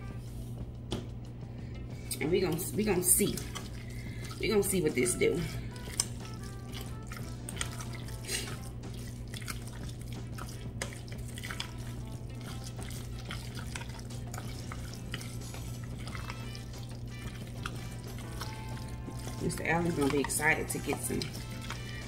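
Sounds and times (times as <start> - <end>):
wet squelching of stirred salad: 2.0 - 22.0
spoon scraping metal bowl: 12.4 - 22.0.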